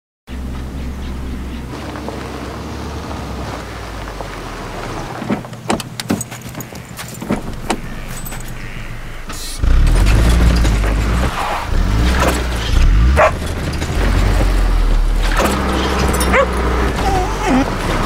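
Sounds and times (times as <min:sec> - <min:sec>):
car engine rumble: 0:00.3 - 0:18.0
light metallic jangle: 0:08.0 - 0:08.7, 0:15.8 - 0:16.8.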